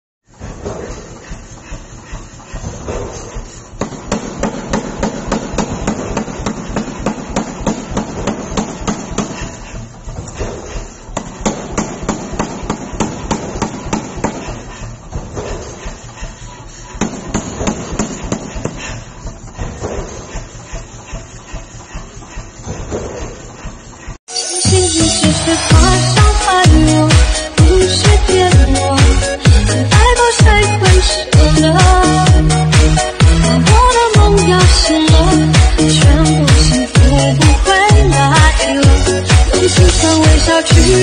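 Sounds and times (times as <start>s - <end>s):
power hammer blows on hot metal: 0.3s - 24.2s.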